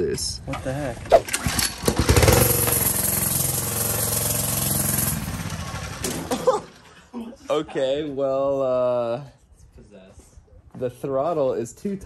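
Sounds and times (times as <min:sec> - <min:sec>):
small gas engine running: 0:01.2 - 0:06.9.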